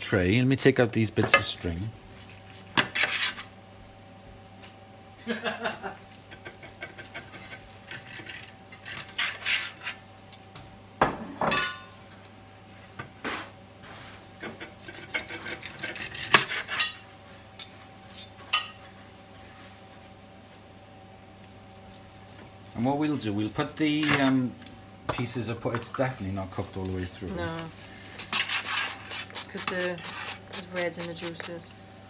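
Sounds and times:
knife scraping metal platter: 0:02.8 - 0:03.5, 0:06.3 - 0:10.0, 0:14.4 - 0:17.1, 0:28.1 - 0:31.6.

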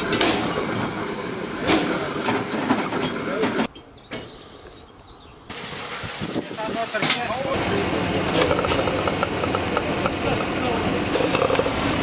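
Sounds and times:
voices: 0:01.3 - 0:04.9, 0:06.2 - 0:11.4
steam hissing from locomotive: 0:05.5 - 0:08.6, 0:10.1 - 0:12.0.

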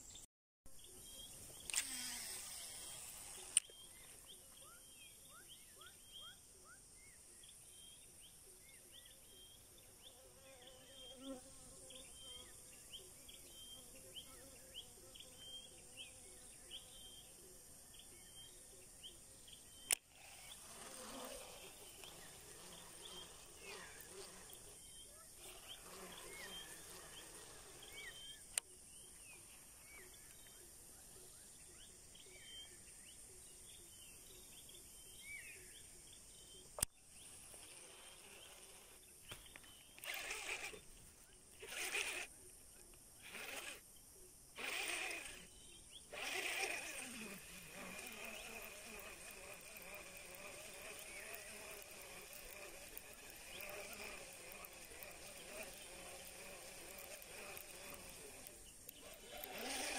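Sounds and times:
insects droning with high hiss: 0:00.8 - 0:59.9
sharp clicks: 0:01.6 - 0:02.1, 0:46.1 - 0:59.9.

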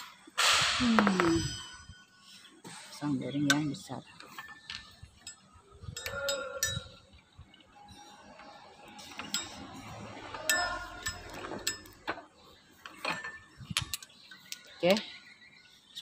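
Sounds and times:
metal clinks and taps: 0:03.5 - 0:07.2.

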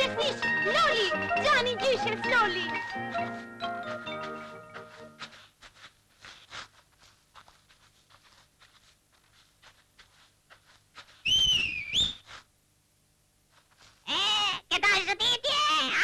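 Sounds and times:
footsteps in snow: 0:00.2 - 0:12.6, 0:13.4 - 0:14.1
sliding cartoon whistle: 0:11.2 - 0:12.3.

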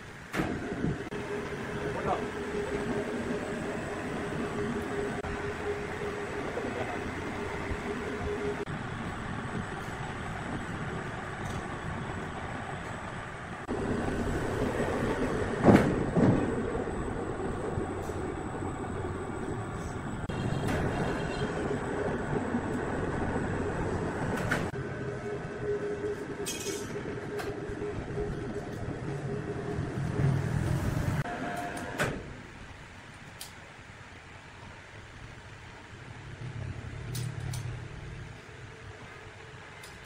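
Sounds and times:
sawmill machinery rumbling: 0:00.1 - 0:32.4.

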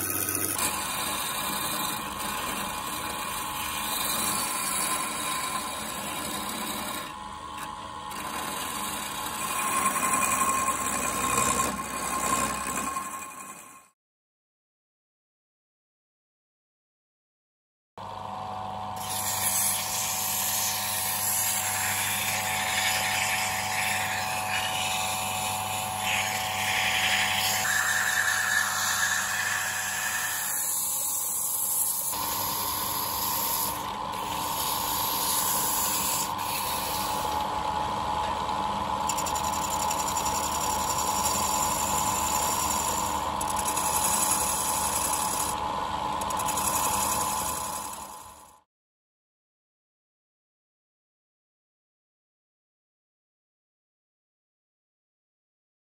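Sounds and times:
lathe motor hum: 0:00.0 - 0:13.9, 0:18.0 - 0:48.6.

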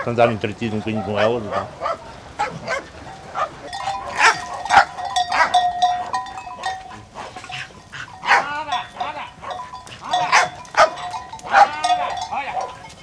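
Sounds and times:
flock of sheep moving about: 0:00.0 - 0:13.0
sheep bells clanking: 0:03.1 - 0:13.0
sheep bleating: 0:08.2 - 0:09.3, 0:10.0 - 0:12.8.

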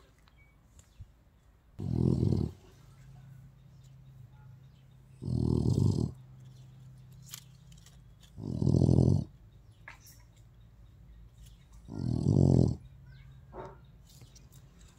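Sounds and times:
dog snoring: 0:01.8 - 0:02.7, 0:05.2 - 0:06.2, 0:08.4 - 0:09.4, 0:11.8 - 0:12.9.

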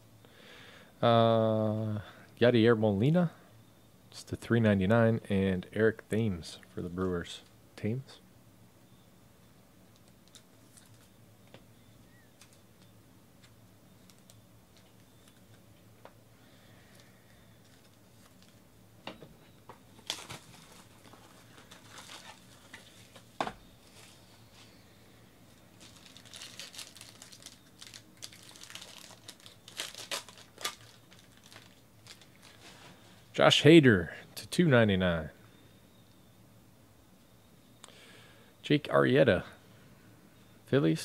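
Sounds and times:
foil wrapper crinkling and tearing: 0:20.0 - 0:24.2, 0:25.5 - 0:32.9.

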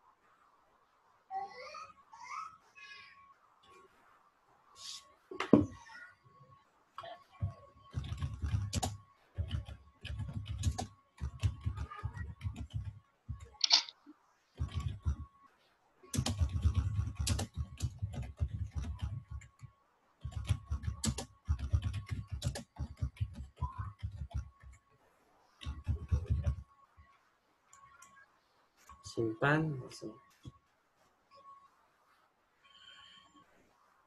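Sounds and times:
typing on a keyboard: 0:07.9 - 0:13.9, 0:16.2 - 0:24.8, 0:25.6 - 0:26.6
faint steady tone: 0:23.5 - 0:34.0.

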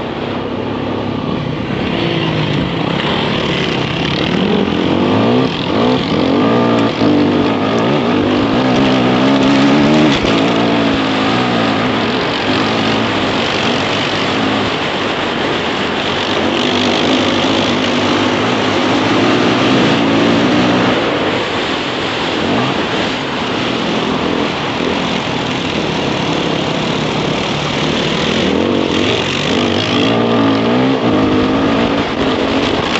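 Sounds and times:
dirt bike engine revving: 0:00.0 - 0:32.9.

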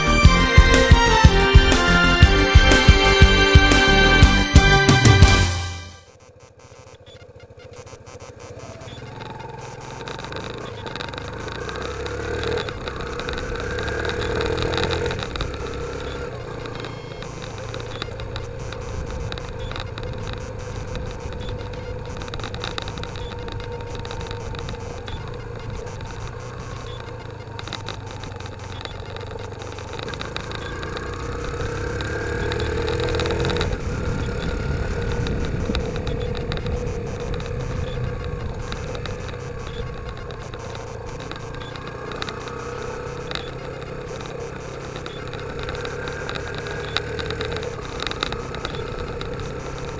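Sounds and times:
motorcycle engine running: 0:00.0 - 0:49.9
wind noise: 0:32.4 - 0:41.8.

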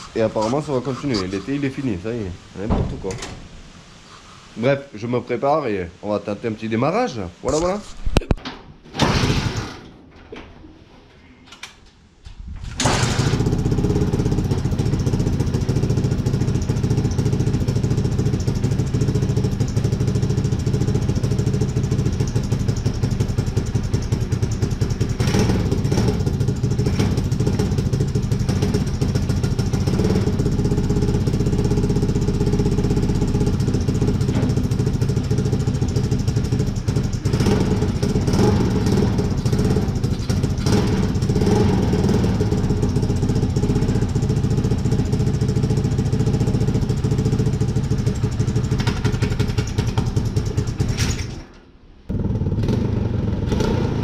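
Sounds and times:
engine revving bursts: 0:12.8 - 0:16.4, 0:24.6 - 0:34.8, 0:35.6 - 0:43.9, 0:52.1 - 0:54.0
engine idling: 0:12.8 - 0:51.4, 0:52.1 - 0:54.0.

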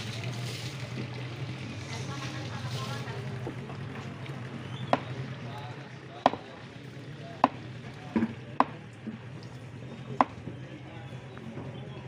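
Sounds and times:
cleaver chopping on wooden block: 0:06.2 - 0:06.4, 0:08.2 - 0:08.8.

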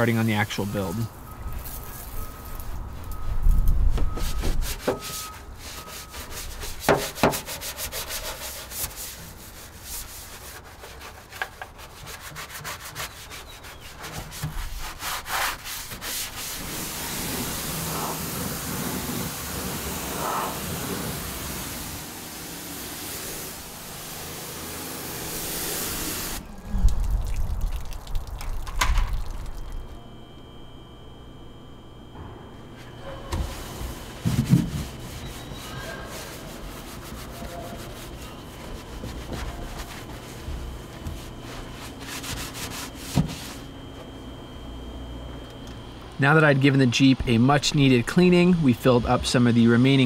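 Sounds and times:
brush scrubbing metal floor: 0:03.9 - 0:26.4, 0:32.8 - 0:44.0
hissing water spray: 0:15.8 - 0:26.4.

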